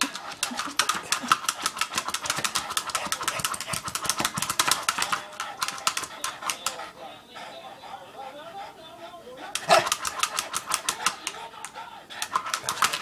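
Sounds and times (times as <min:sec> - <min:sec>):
dog claws scratching rubber ball: 0:00.0 - 0:06.8, 0:09.6 - 0:13.0.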